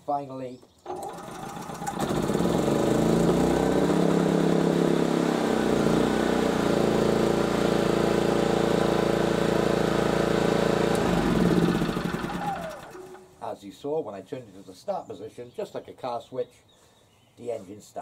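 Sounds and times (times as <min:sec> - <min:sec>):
generator engine starting and running: 0:00.8 - 0:13.4.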